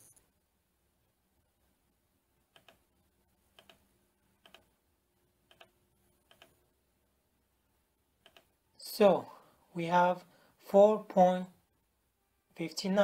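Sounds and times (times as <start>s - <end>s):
computer mouse clicking: 2.5s - 2.9s, 3.5s - 4.7s, 5.5s - 6.6s, 8.2s - 8.6s.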